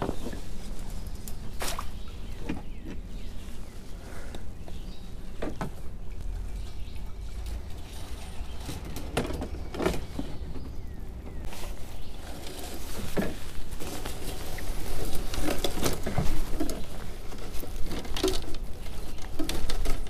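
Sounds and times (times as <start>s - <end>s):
steady low rumble: 0.3s - 12.2s.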